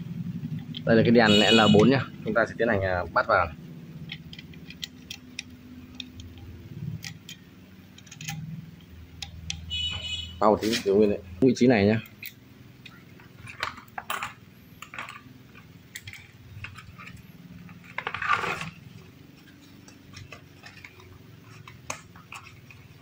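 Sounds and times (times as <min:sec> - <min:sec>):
metal scrape: 0:10.6 - 0:11.0, 0:16.2 - 0:18.8.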